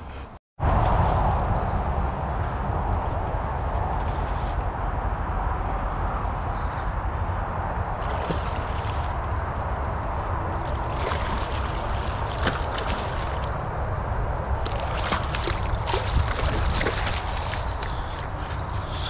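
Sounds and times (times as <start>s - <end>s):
fish splashing in water: 10.6s - 13.8s, 14.5s - 19.0s.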